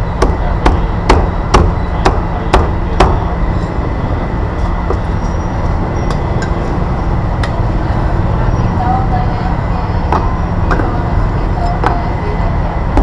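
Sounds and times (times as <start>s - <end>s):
steady low rumble: 0.0s - 13.0s
sharp knocks: 0.2s - 3.3s.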